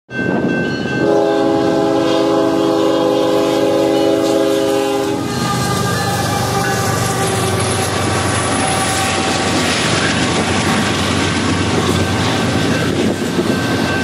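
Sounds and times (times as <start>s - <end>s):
locomotive air horn blast: 1.0s - 9.6s.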